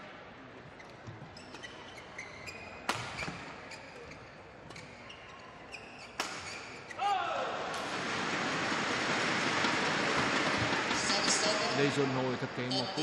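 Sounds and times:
shoes squeaking on court: 0.6s - 7.0s
rackets striking shuttlecock: 6.2s - 6.7s.

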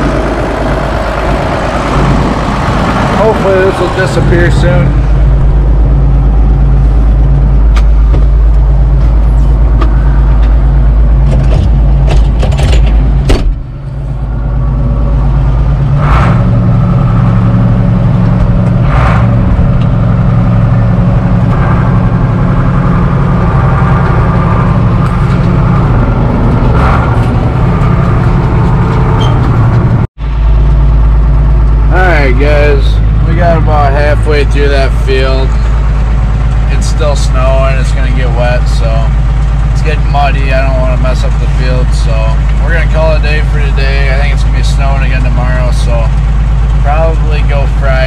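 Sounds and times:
tractor engine running: 0.0s - 48.0s
knocks and rattles in cab: 7.2s - 13.9s.

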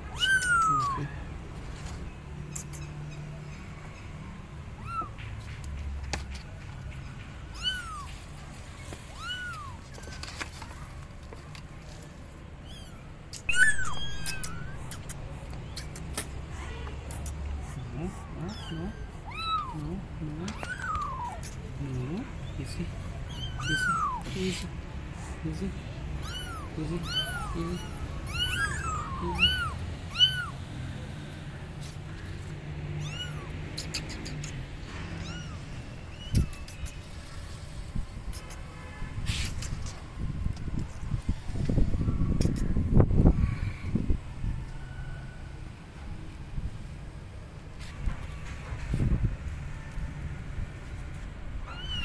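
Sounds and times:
kittens meowing: 0.0s - 1.4s, 4.6s - 5.3s, 7.5s - 8.2s, 9.0s - 10.4s, 12.6s - 24.8s, 25.4s - 30.6s, 32.4s - 36.9s, 51.5s - 52.0s.

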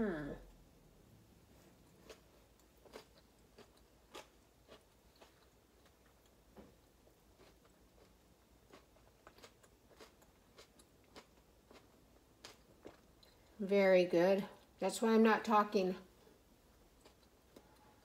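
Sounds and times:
faint chewing: 1.6s - 13.6s, 16.2s - 18.0s.

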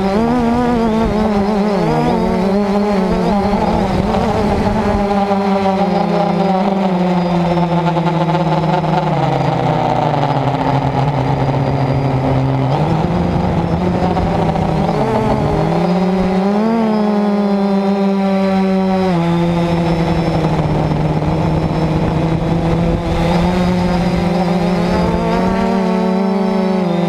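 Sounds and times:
drone motors and propellers whining: 0.0s - 27.0s.

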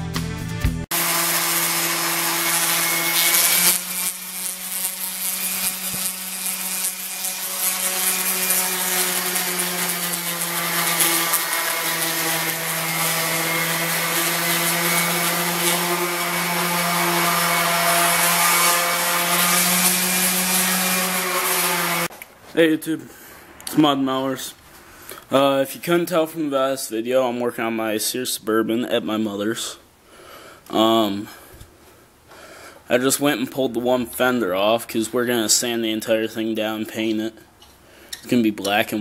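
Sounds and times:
electric grinder on metal: 0.9s - 22.1s.

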